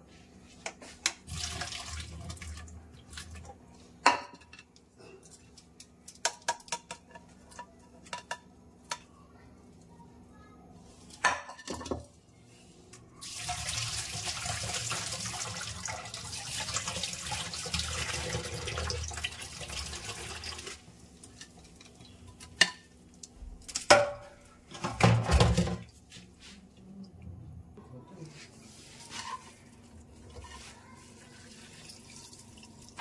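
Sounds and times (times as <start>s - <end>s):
pan and utensils clanking: 23.6s - 25.9s, 29.0s - 29.6s.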